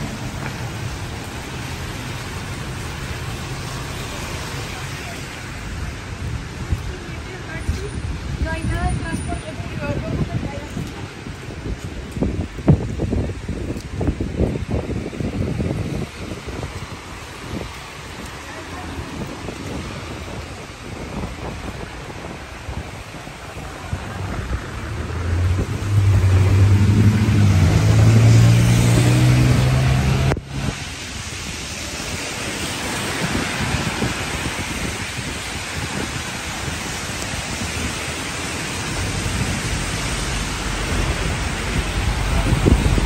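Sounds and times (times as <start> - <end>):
heavy rain: 0.0 - 43.0
tyre hiss on wet street: 0.0 - 43.0
vehicle engine humming: 23.4 - 31.0.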